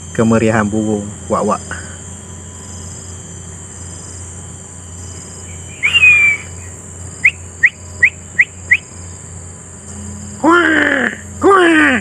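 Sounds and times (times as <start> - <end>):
bird calling: 5.1 - 9.3.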